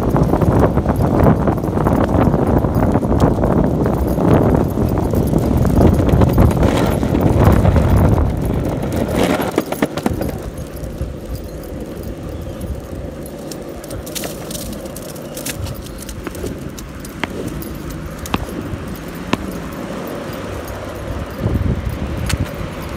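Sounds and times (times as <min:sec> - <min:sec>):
longboard wheels rolling on pavement: 0:00.0 - 0:22.9.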